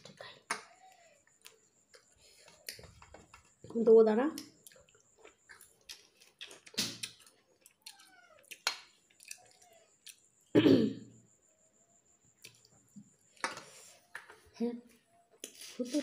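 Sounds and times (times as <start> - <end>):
wet chewing and lip smacks: 4.3 - 10.3.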